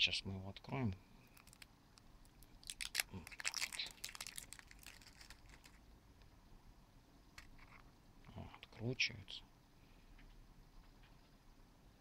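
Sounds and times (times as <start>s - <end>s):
plastic film crinkling: 1.3s - 5.8s.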